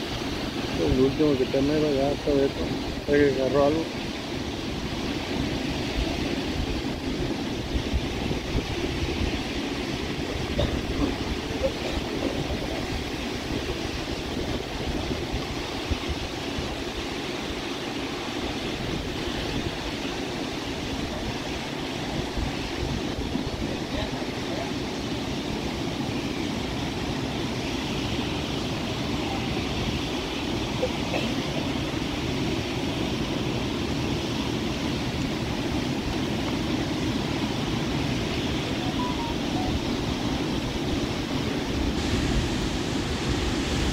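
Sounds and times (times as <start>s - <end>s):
wind buffeting microphone: 0.0s - 31.0s
river water rushing through spillway: 0.0s - 43.9s.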